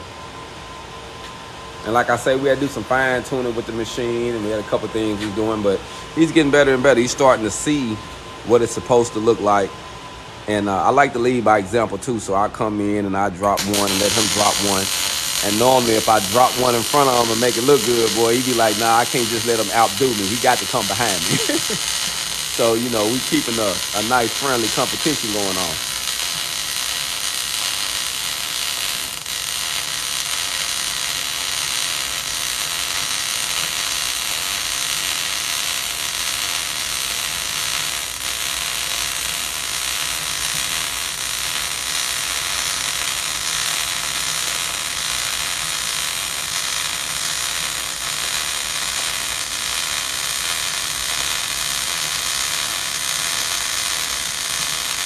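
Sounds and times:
welding arc crackling: 13.4 - 55.0.

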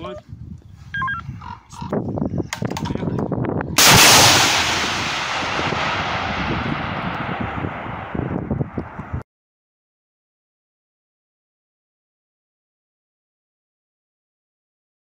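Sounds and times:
missile hiss: 3.8 - 8.2
loud missile launch blast: 3.8 - 9.2.

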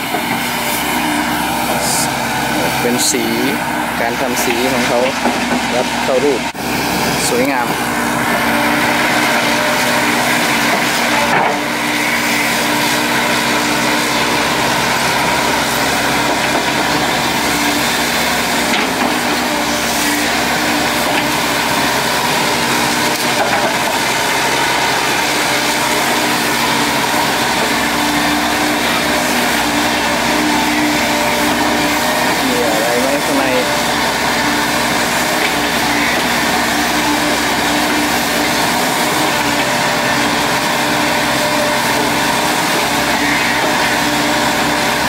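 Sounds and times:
excavator engine and hydraulics: 0.0 - 45.0.

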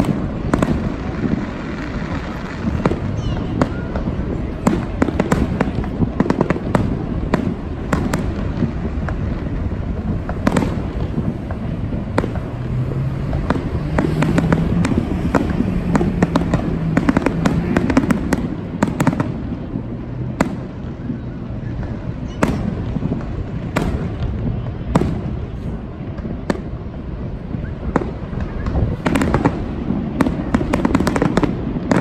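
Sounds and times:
fireworks bangs and crackles: 0.0 - 32.0.

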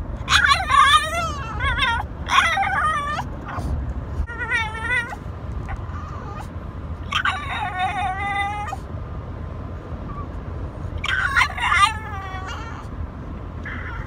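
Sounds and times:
dog whining howl-like calls: 0.3 - 3.3, 7.1 - 8.8, 11.0 - 12.8.

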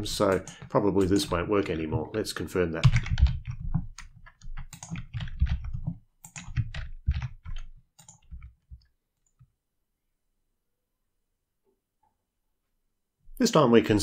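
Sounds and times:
keyboard typing: 0.0 - 9.5.

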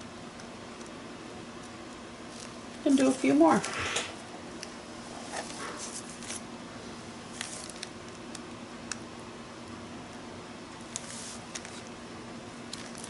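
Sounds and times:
steady low hum: 0.0 - 13.0
soft brushing hiss: 10.9 - 11.6.

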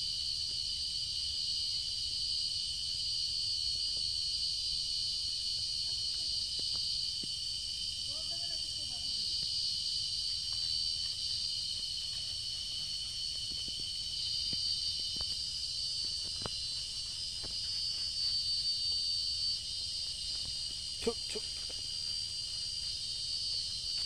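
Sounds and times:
high-pitched insect chorus buzzing: 0.0 - 24.0.

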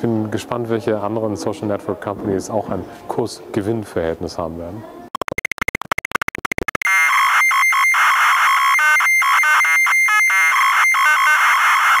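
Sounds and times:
buzzy synthesized tones: 5.2 - 7.5.

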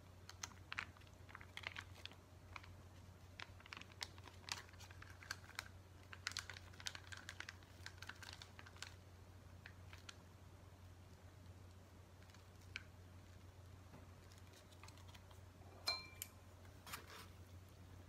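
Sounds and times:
low steady hum: 0.0 - 18.0
plastic sachet crinkling: 0.2 - 10.2, 11.0 - 13.5, 14.2 - 15.4.

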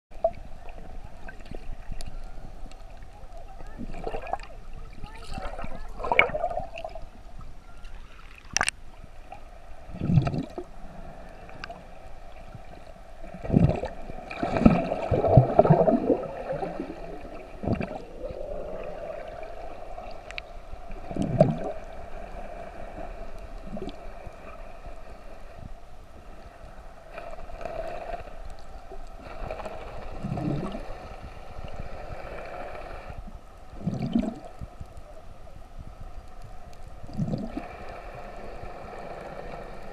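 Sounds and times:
muffled underwater water movement: 0.1 - 39.9
bubbly surges: 3.6 - 7.2, 9.9 - 10.7, 13.3 - 20.3, 20.9 - 21.9, 29.4 - 31.0, 33.7 - 34.6, 37.1 - 37.7.

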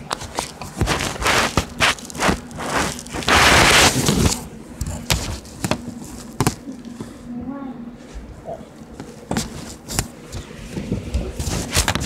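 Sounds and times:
loud hiss: 2.7 - 4.2.

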